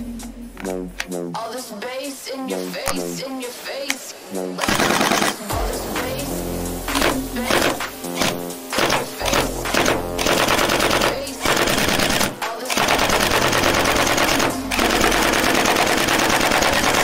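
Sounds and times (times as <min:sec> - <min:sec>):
gel blaster automatic fire: 0:04.6 - 0:05.5, 0:07.0 - 0:17.0.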